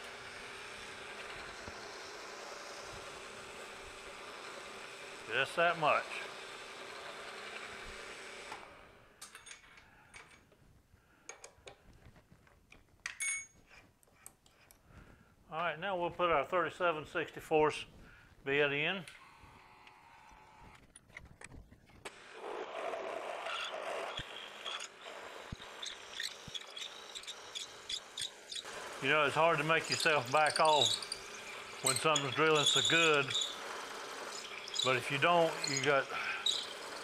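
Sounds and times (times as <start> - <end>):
drill spindle running and winding down: 0.0 - 8.9, 22.1 - 37.0.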